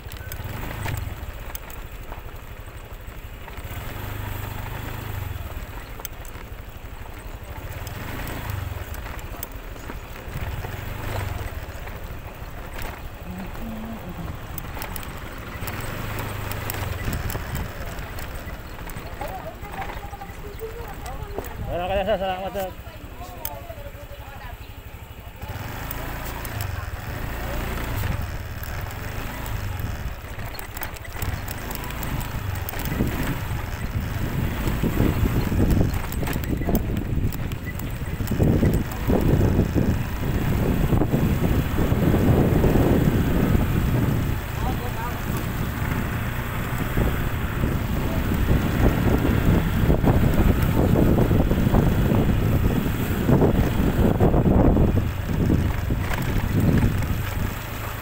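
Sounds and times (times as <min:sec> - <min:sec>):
gravel stones clicking: 0:00.0 - 0:58.0
motorcycle engine at low speed: 0:00.0 - 0:58.0
knocks and rattles: 0:03.5 - 0:22.7, 0:25.8 - 0:57.5
wind buffeting microphone: 0:10.0 - 0:22.8, 0:24.7 - 0:58.0.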